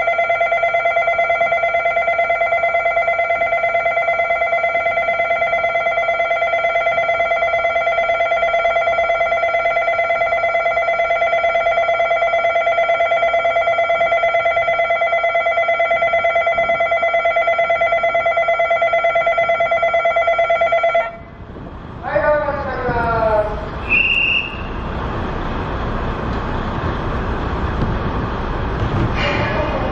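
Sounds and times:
station bell ringing: 0.0 - 21.4.

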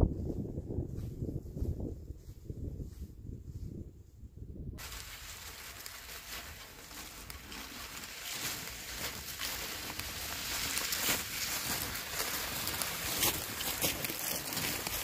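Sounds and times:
footsteps crunching on snow: 4.8 - 15.0
sled sliding over snow: 4.8 - 15.0.

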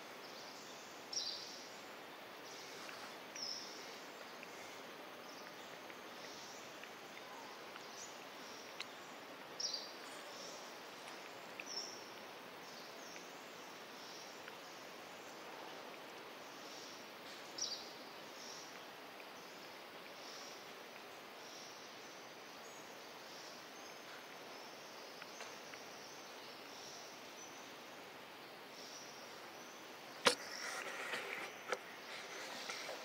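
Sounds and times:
faint forest hiss: 0.0 - 33.0
sharp click: 30.2 - 31.8
rustling: 30.2 - 33.0.

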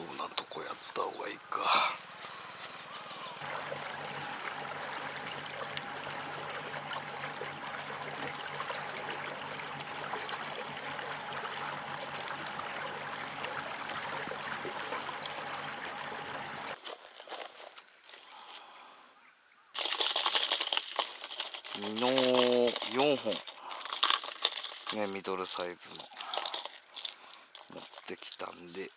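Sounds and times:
water lapping along boat hull: 2.0 - 16.8
low motor hum: 3.4 - 16.8.

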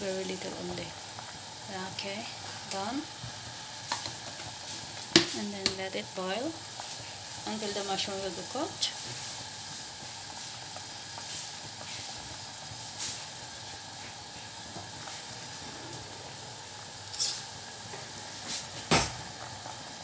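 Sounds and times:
broth boiling: 0.0 - 20.0.

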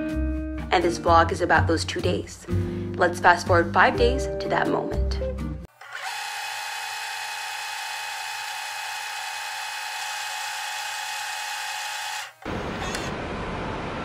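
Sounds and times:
videotape fast-forward whirring: 5.7 - 13.2.

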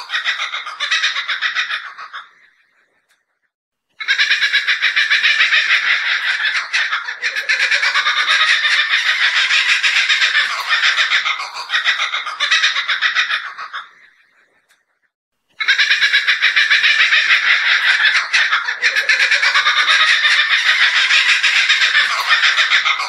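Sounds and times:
kookaburra laughing call: 0.0 - 2.5, 4.0 - 14.2, 15.6 - 23.0.

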